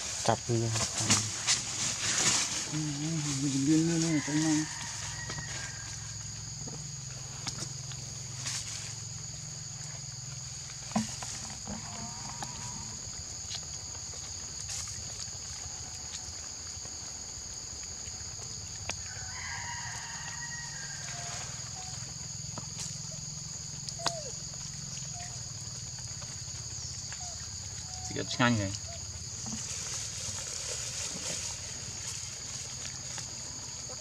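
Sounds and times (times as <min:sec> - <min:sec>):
high-pitched insect drone: 0:02.2 - 0:13.2
animal calls: 0:23.1 - 0:26.3.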